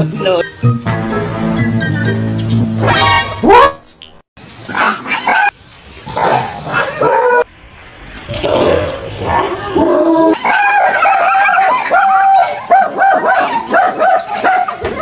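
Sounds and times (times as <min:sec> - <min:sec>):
dog yelping: 0:03.4 - 0:03.8, 0:10.4 - 0:15.0
dog barking rapidly: 0:10.4 - 0:15.0.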